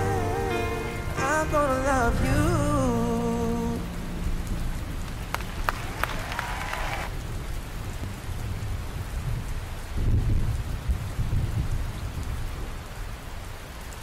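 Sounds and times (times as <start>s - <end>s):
steady rain falling: 0.0s - 14.0s
low rumble of thunder: 7.1s - 13.0s.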